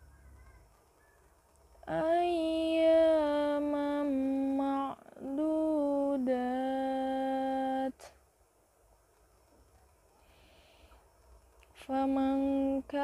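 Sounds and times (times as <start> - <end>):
woman chanting melodically: 1.8 - 8.2, 11.8 - 13.0
quick breath: 10.2 - 11.1.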